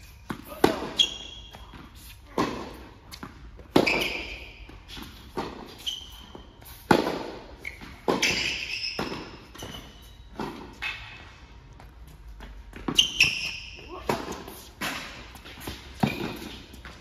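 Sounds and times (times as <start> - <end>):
shoes squeaking on court: 0.0 - 17.0
tennis ball struck by racquets: 0.3 - 5.8, 6.8 - 9.5.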